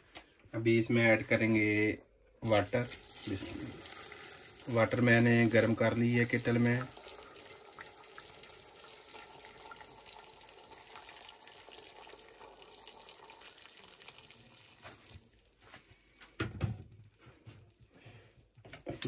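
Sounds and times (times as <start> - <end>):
water splashing: 2.4 - 15.4
water pouring into pot: 2.4 - 16.2.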